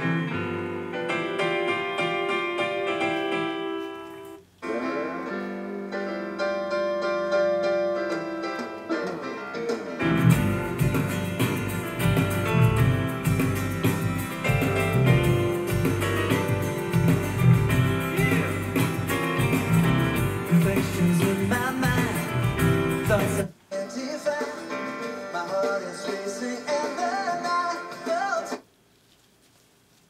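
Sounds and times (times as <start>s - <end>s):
guitar with full band: 0.0s - 23.5s
keyboard: 0.0s - 28.6s
concert music from a tv: 0.0s - 28.7s.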